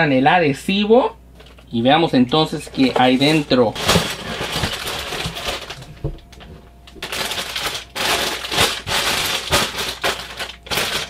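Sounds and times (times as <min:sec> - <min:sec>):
plastic bags rustling: 0:02.4 - 0:11.0.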